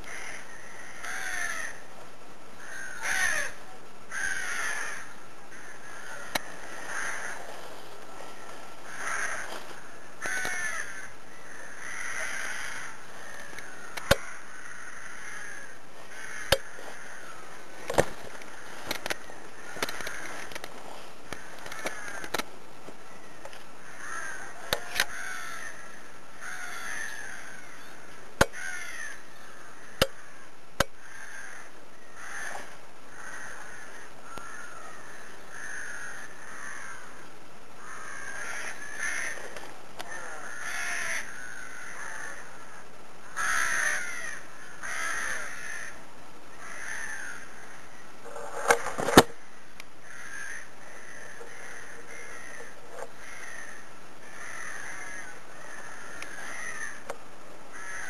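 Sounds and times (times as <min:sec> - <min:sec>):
crows cawing: 0:00.0 - 0:01.9, 0:02.6 - 0:22.5, 0:23.1 - 0:58.0.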